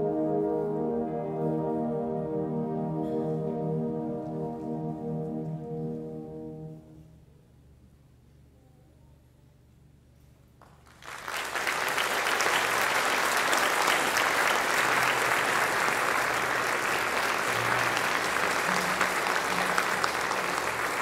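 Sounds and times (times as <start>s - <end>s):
audience applauding: 10.6s - 21.0s.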